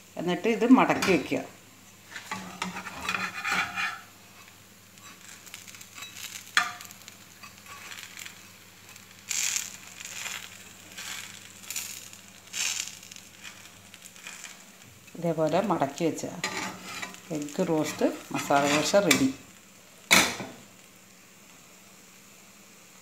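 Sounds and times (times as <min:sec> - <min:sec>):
frying sizzle: 0:00.0 - 0:23.0
spatula scraping a pan: 0:02.1 - 0:14.6, 0:16.4 - 0:19.4.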